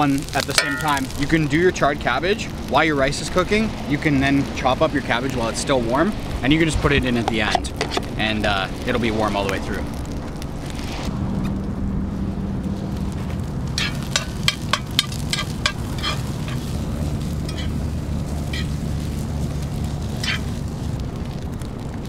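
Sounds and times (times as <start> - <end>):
steady low hum: 9.8 - 22.0
metal spatula scraping pan: 13.8 - 16.7, 17.5 - 17.8, 18.5 - 18.8, 20.2 - 20.6.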